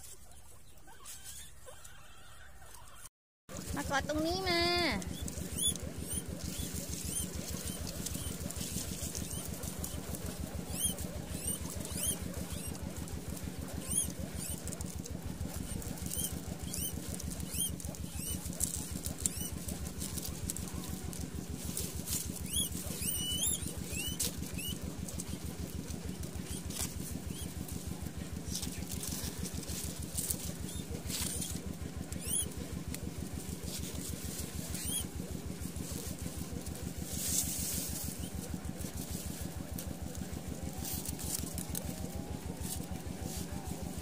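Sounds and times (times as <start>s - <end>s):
guinea pigs squeaking: 0.0s - 44.0s
small engine running: 0.0s - 44.0s.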